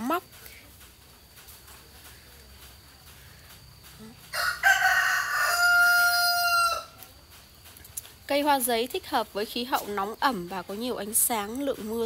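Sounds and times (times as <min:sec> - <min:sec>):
rooster crowing: 0:04.3 - 0:07.0.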